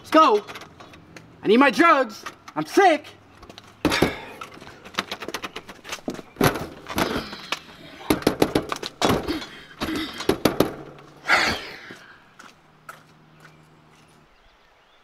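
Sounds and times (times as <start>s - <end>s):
fists pounding on a door: 8.1s - 9.3s, 10.3s - 10.9s.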